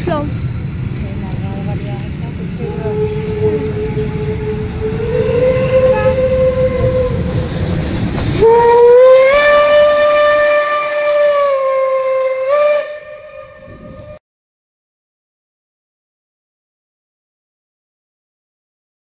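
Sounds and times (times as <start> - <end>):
low rumble of train: 0.0 - 14.2
steam locomotive whistle: 2.6 - 14.2.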